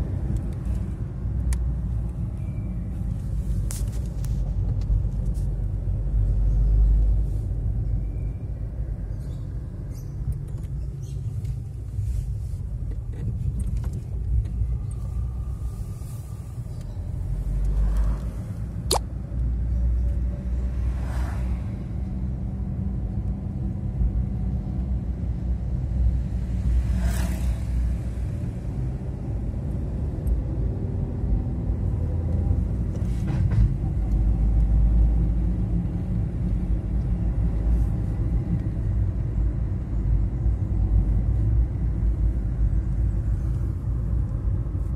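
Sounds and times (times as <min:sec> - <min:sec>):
car engine and tyre rumble: 0:00.0 - 0:44.9.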